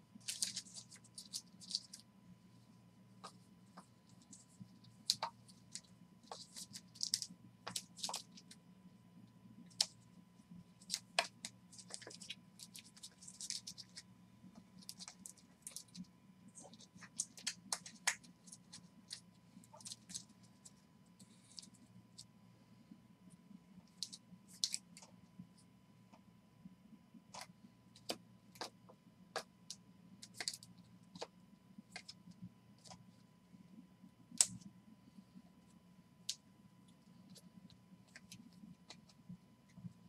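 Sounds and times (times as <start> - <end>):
steady low hum: 0.0 - 40.0
plastic cards clicking and tapping: 5.0 - 8.5, 10.8 - 14.0.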